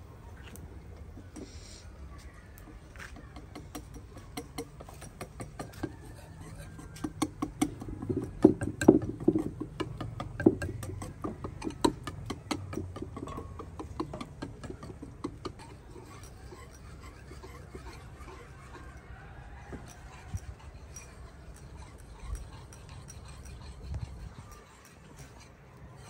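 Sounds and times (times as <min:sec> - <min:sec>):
sharp clicks and taps: 0:06.8 - 0:15.7.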